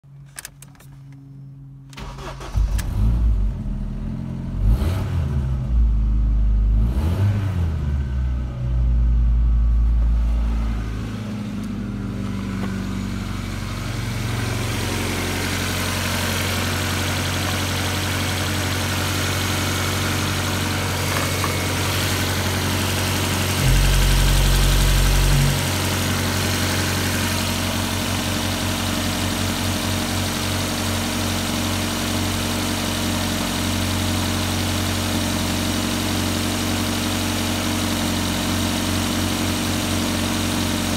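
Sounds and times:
car engine starting and revving: 0:02.0 - 0:29.3.

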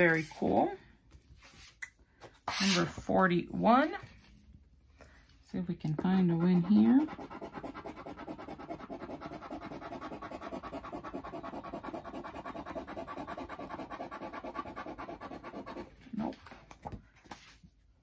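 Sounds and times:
scratching lottery ticket: 0:06.3 - 0:16.0.

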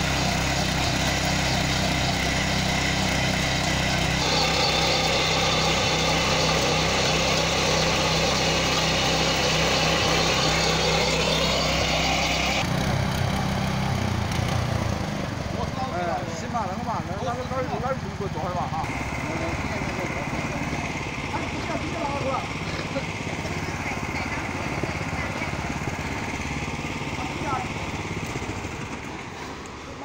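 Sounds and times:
blades churning soil: 0:00.0 - 0:30.0
power tiller engine running: 0:00.0 - 0:30.0.

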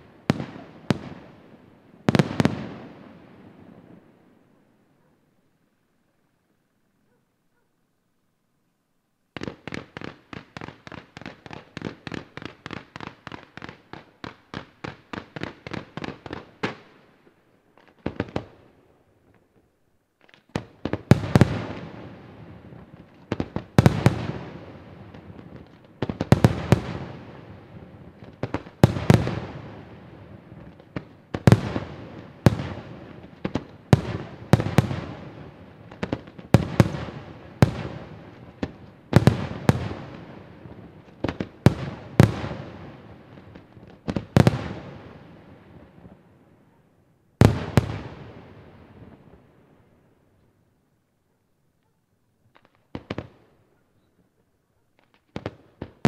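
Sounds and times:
firework crackle: 0:20.2 - 0:46.2.

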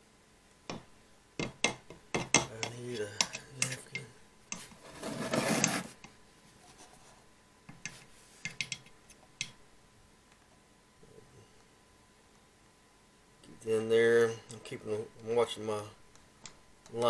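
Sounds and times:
metal can scraping on wood: 0:04.8 - 0:06.0.

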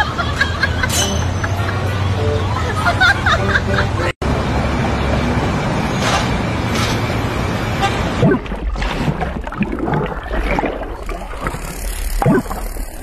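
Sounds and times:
city traffic: 0:00.0 - 0:08.5
water sounds: 0:07.2 - 0:13.0.

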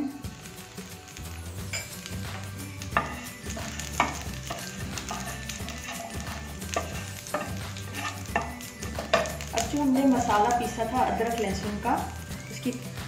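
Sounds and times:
spices sizzling in oil: 0:00.0 - 0:13.0
spatula knocking and scraping pan: 0:01.8 - 0:11.2.

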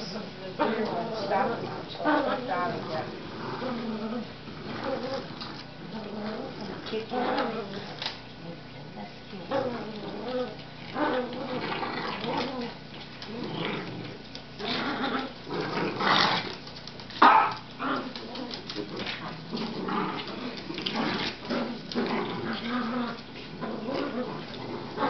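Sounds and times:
dogs growling: 0:00.0 - 0:25.0.

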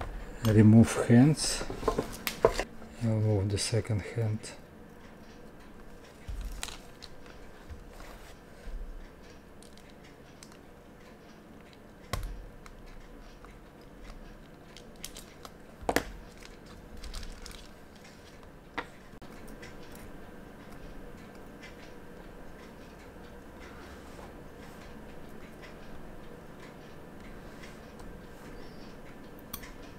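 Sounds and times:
plastic sheet crinkling: 0:16.3 - 0:18.0.

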